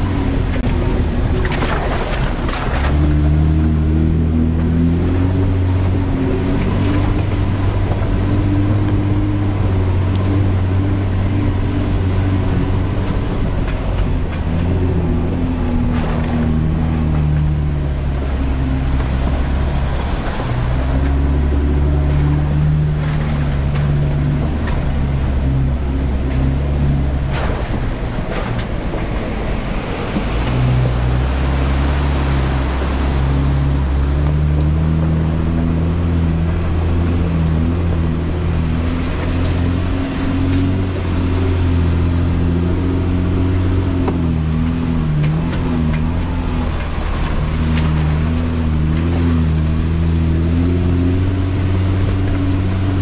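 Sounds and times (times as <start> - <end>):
car engine at low revs: 0.0 - 53.0
tyre and road noise: 0.0 - 53.0.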